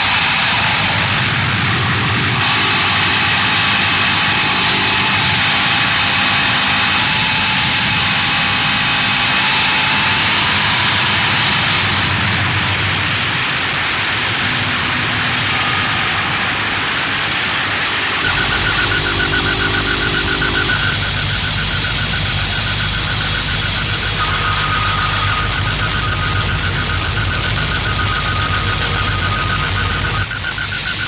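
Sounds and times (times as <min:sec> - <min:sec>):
faint held tones: 0:18.2 - 0:31.0.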